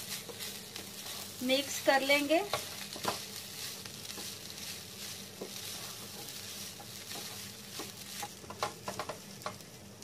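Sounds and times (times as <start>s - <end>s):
rice sizzling in frying pan: 0.0s - 10.0s
spatula scraping pan: 2.4s - 9.6s.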